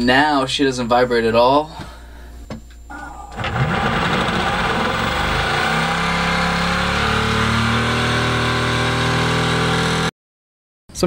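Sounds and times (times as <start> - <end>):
electric motor humming: 3.0 - 10.1.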